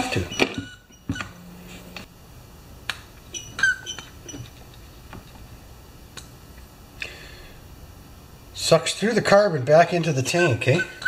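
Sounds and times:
rubber primer bulb clicking and squeaking: 0.1s - 1.4s, 2.9s - 4.6s.

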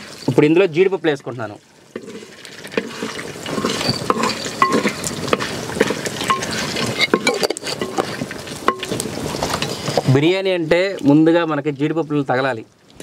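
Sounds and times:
hot oil sizzling: 0.0s - 13.0s
wooden spoon scraping clay pot: 1.9s - 10.2s.

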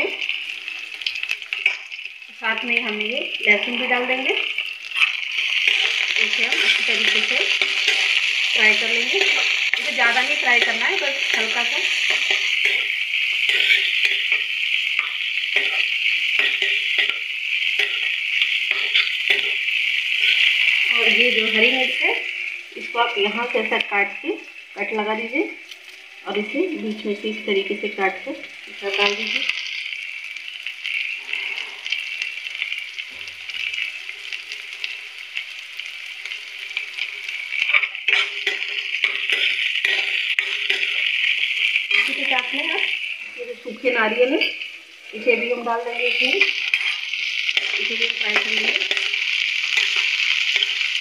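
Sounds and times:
food sizzling in oil: 0.0s - 51.0s
spatula scraping pan: 5.0s - 17.2s, 46.3s - 50.8s.

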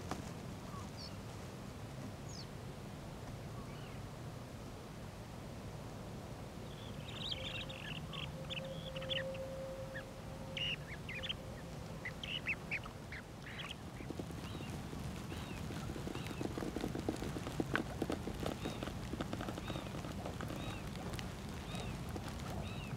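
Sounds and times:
steady low hum: 0.0s - 22.9s
waterbirds calling: 6.7s - 16.6s, 18.0s - 22.9s
rapid faint clicking: 13.4s - 22.9s.

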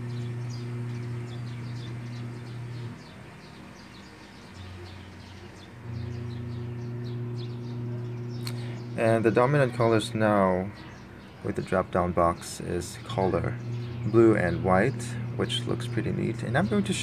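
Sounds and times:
steady low hum: 0.0s - 3.0s, 5.8s - 10.8s, 12.6s - 17.0s
small birds chirping: 0.0s - 17.0s.

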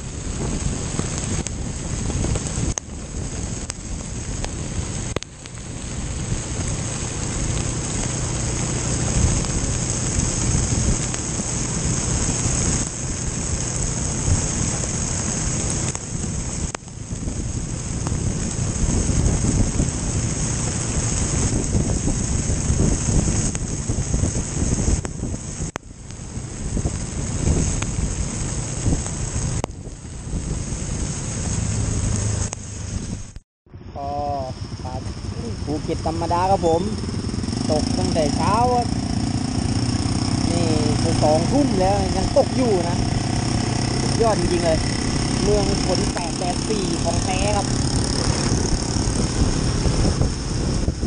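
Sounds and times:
heavy rain: 0.0s - 51.0s
motorcycle engine hum: 0.0s - 51.0s
wind rushing over microphone: 0.0s - 51.0s.

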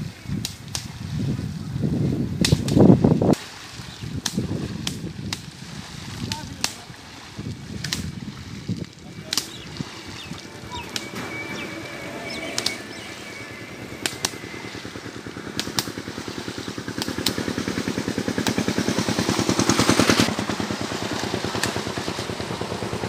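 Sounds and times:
sharp clicks: 7.8s - 8.1s, 9.3s - 14.9s, 15.5s - 16.2s, 16.9s - 17.8s
small engine running: 9.2s - 23.0s.

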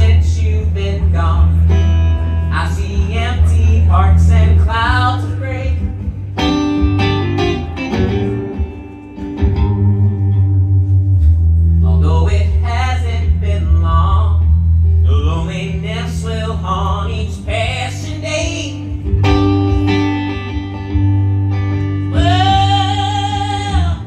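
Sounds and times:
man singing: 0.0s - 6.2s, 11.8s - 19.1s, 22.1s - 24.0s
bass line: 0.0s - 24.0s
electric guitar: 0.0s - 24.0s.

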